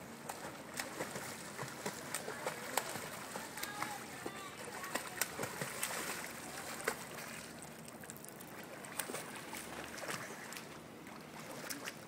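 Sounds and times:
swimming splashes: 0:00.0 - 0:12.0.

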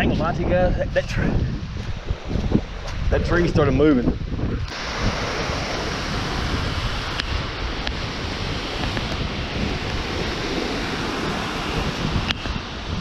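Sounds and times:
wind buffeting microphone: 0:00.0 - 0:13.0
water rushing over spillway: 0:04.7 - 0:13.0.

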